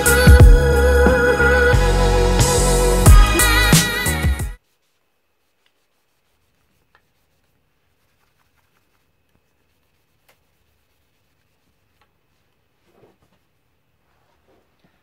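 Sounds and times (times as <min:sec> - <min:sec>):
cloth rubbing wooden bowl: 0:04.6 - 0:14.8.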